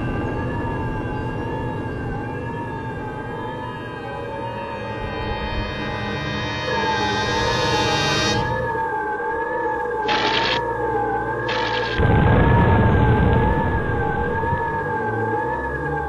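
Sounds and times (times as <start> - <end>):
wavering siren-like tone: 0.0 - 16.0
deep explosion blast: 11.8 - 15.4.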